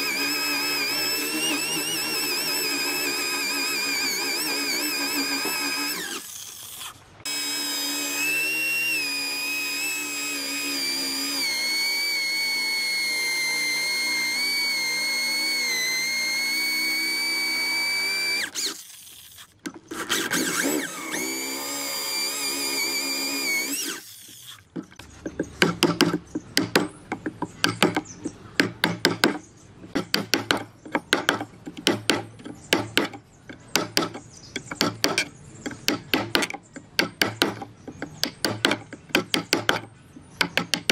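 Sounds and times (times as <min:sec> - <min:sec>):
power tool whining: 0:00.0 - 0:24.7.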